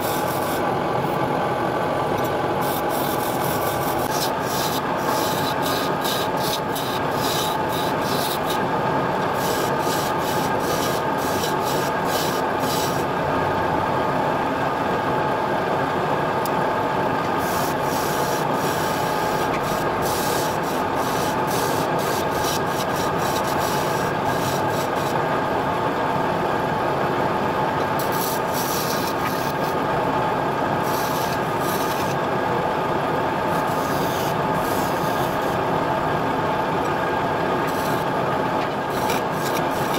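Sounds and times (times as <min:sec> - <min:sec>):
wood lathe humming and whining: 0:00.0 - 0:14.4, 0:15.0 - 0:39.9
tool scraping spinning wood: 0:02.6 - 0:13.1, 0:17.3 - 0:25.2, 0:27.8 - 0:29.8, 0:30.8 - 0:32.3, 0:33.4 - 0:35.6, 0:37.6 - 0:39.9.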